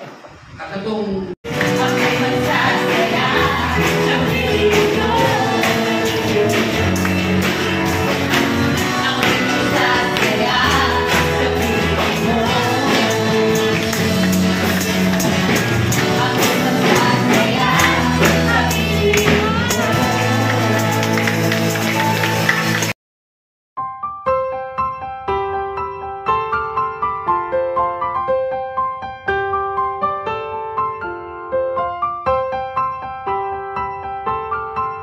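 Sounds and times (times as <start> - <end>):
praise band playing: 1.4 - 23.0
voices singing along: 1.5 - 21.8.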